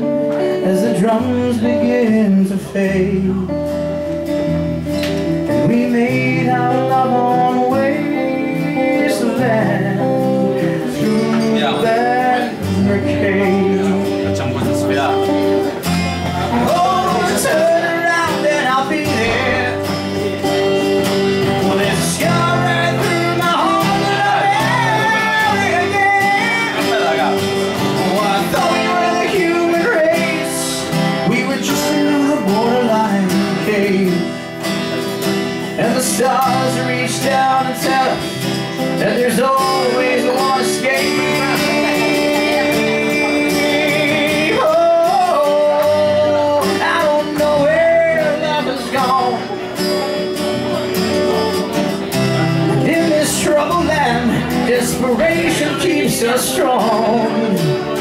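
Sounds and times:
guitar accompaniment: 0.0s - 58.0s
wavering melodic lead line: 0.0s - 58.0s.

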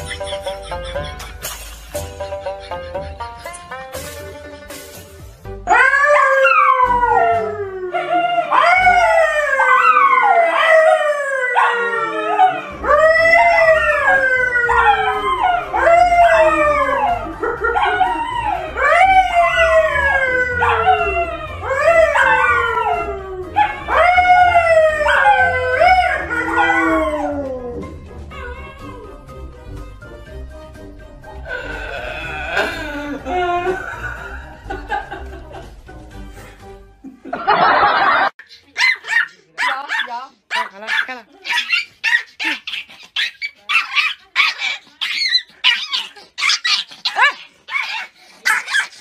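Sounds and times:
dogs howling: 5.7s - 29.2s.

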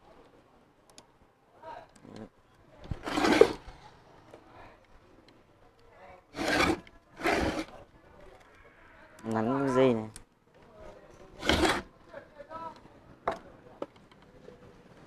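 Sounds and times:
metal housing scraping on wood: 2.9s - 3.7s, 6.4s - 7.8s, 11.3s - 11.9s.

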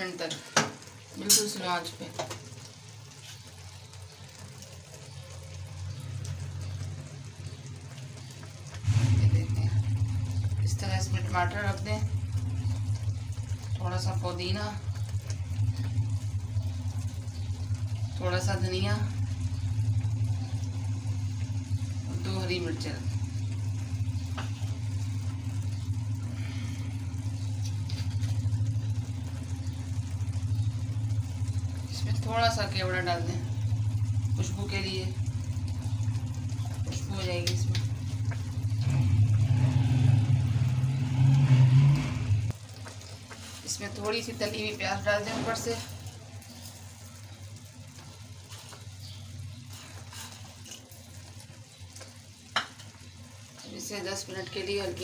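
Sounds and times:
low mechanical hum: 2.5s - 55.0s
low rumble: 8.8s - 42.8s.

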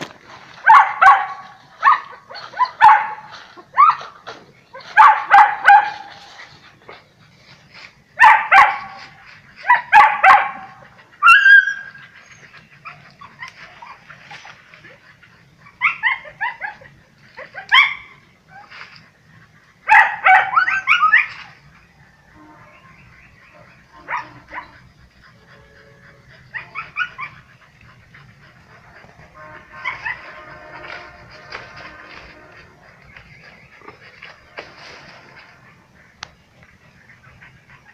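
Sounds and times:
dogs barking: 0.6s - 6.3s, 8.2s - 18.2s, 19.4s - 21.6s, 23.0s - 37.9s.

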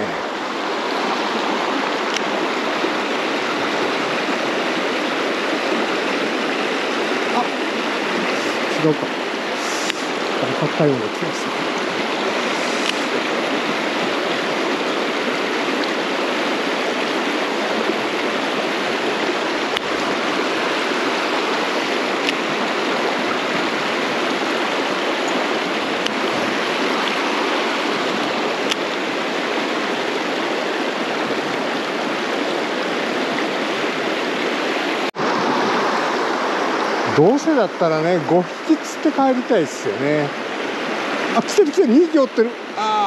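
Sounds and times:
stream rushing over rocks: 0.0s - 43.0s
faint clicks: 12.8s - 13.0s.

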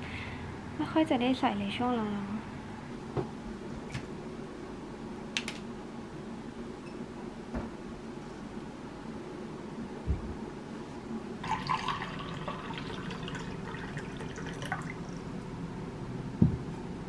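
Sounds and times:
water pouring into a glass: 11.4s - 15.3s
soft low knock: 16.4s - 16.7s.

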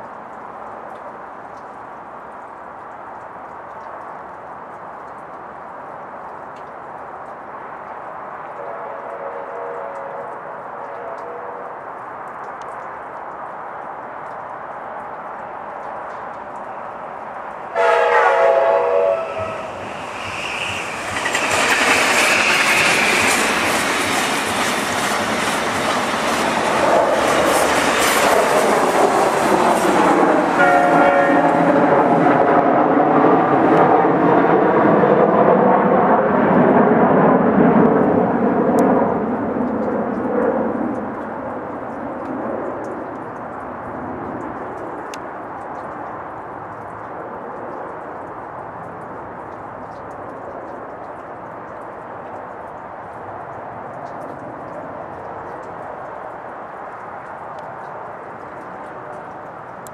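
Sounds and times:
train passing at speed: 7.5s - 12.2s, 13.7s - 45.2s
train horn blasts: 8.6s - 11.8s, 17.7s - 19.8s, 30.5s - 32.0s.

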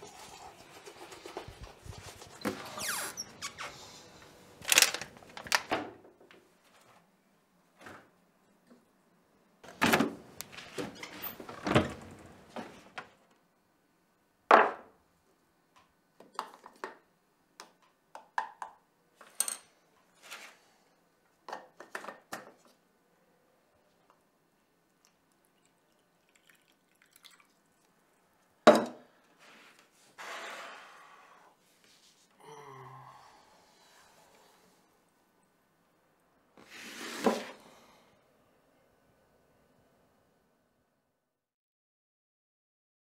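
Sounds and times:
water pouring: 0.0s - 1.8s, 25.4s - 27.9s.

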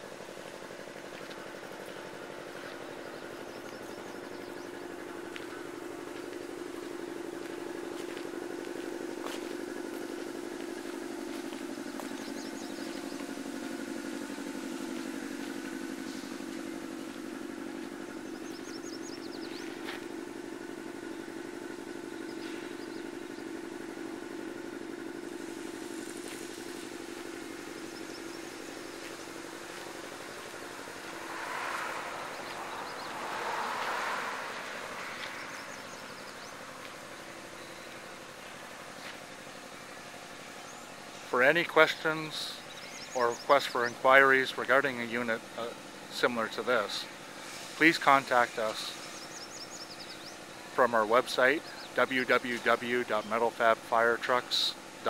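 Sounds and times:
engine idling: 0.0s - 55.0s
rushes of noise: 30.4s - 36.2s.

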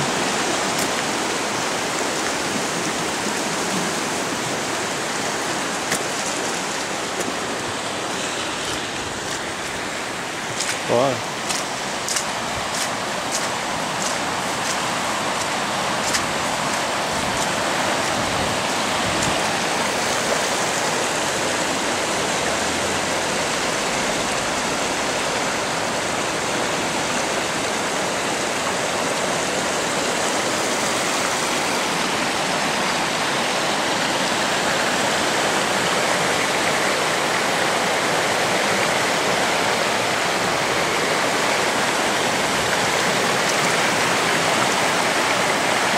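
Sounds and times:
floodwater rushing: 0.0s - 45.9s.

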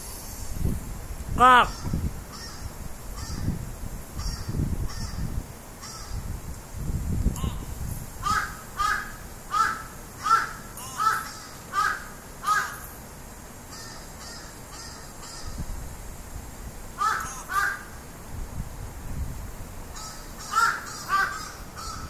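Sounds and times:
crow cawing: 1.7s - 3.5s, 4.2s - 6.2s, 8.2s - 12.9s, 13.7s - 15.6s, 17.0s - 18.0s, 20.0s - 22.0s.

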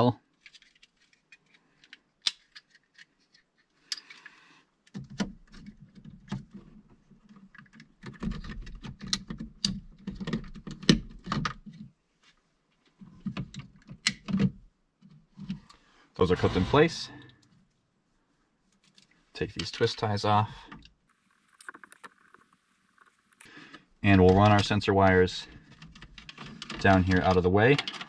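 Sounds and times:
plastic clicks and rattles: 0.3s - 11.9s, 25.5s - 28.0s.

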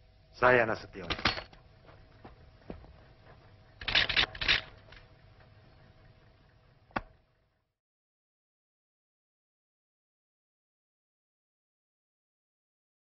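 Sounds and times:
faint steady hum: 0.0s - 7.8s.

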